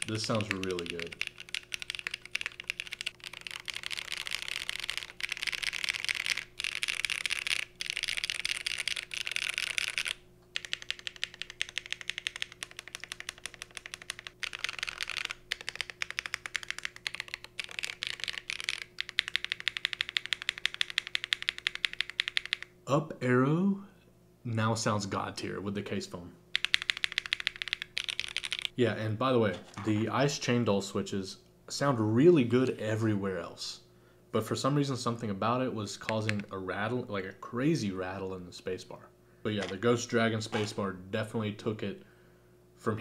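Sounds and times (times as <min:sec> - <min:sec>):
fast typing on mechanical keyboard: 0:00.0 - 0:22.7, 0:26.6 - 0:28.7.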